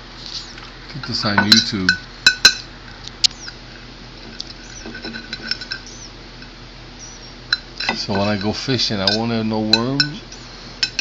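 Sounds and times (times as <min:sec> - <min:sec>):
tableware clinking: 0:01.0 - 0:02.7, 0:04.2 - 0:06.0, 0:07.5 - 0:11.0.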